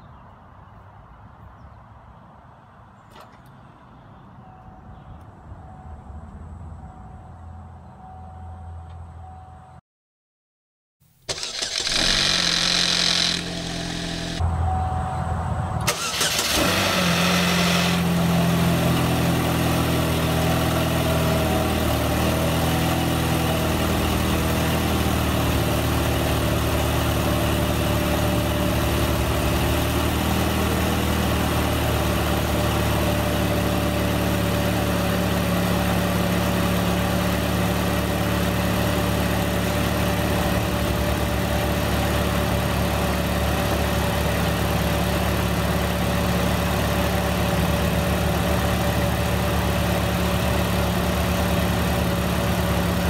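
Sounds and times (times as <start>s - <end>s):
car engine cold start: 11.2s - 14.4s, 15.8s - 18.3s
engine idling: 11.3s - 14.4s, 17.9s - 53.0s
hissy engine noise: 11.3s - 14.4s.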